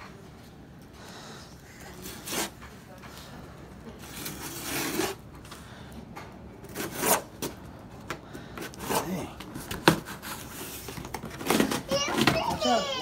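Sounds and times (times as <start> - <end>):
scissors cutting cardboard: 4.1 - 5.2, 6.6 - 7.5.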